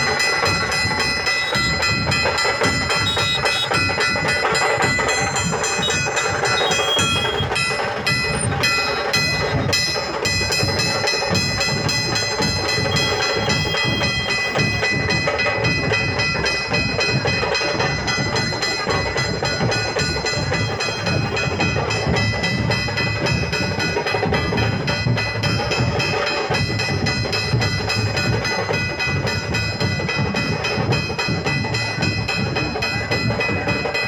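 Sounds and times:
music or drumming: 0:00.0 - 0:34.0
street crowd din: 0:00.0 - 0:34.0.

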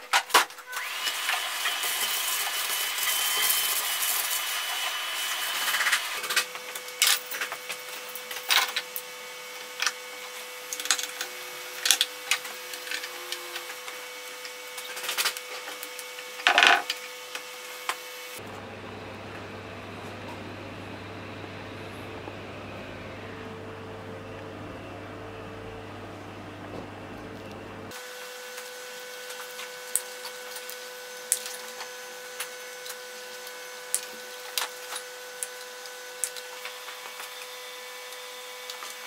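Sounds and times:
shop vacuum running with whine: 0:00.6 - 0:39.0
low steady hum: 0:18.4 - 0:27.9.

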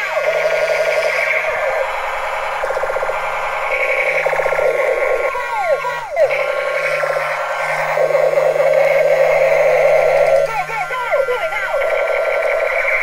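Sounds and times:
falling whistling tones: 0:00.0 - 0:13.0
electronic blast: 0:00.1 - 0:13.0
toy gun machine-gun rattle: 0:00.1 - 0:13.0
steady low hum: 0:00.2 - 0:13.0.

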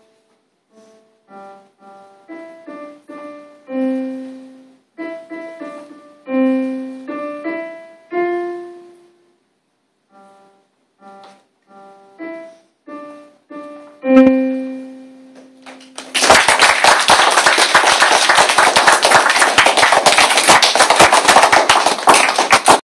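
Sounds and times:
electronic keyboard chords: 0:00.0 - 0:09.1, 0:10.1 - 0:16.0
children applauding: 0:15.6 - 0:22.8.

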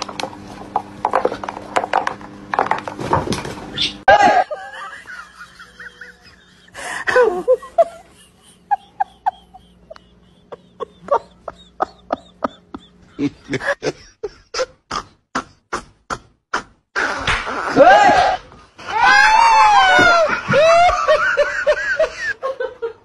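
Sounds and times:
laughter: 0:04.1 - 0:15.1, 0:20.0 - 0:23.0.

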